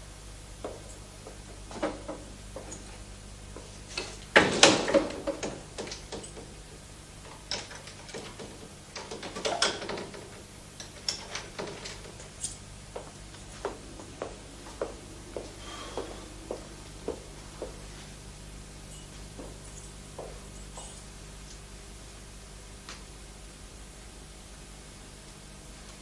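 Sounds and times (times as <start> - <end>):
mechanism clicks and rattles: 7.2 - 12.7.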